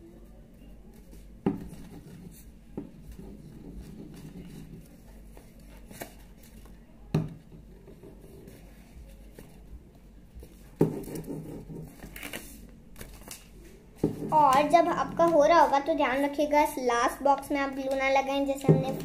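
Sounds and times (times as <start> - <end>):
paper rustling: 10.4 - 16.5.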